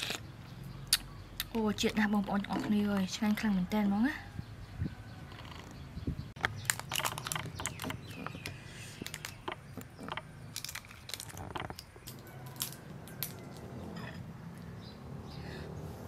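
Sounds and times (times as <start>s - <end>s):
shrimp shell crackling as peeled: 9.0s - 13.4s.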